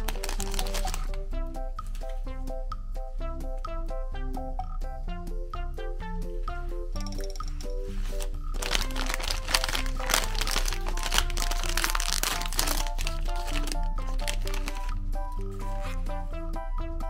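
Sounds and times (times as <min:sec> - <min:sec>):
plastic wrapper crinkling: 0:00.0 - 0:01.2, 0:08.0 - 0:16.1
background music: 0:00.0 - 0:17.0.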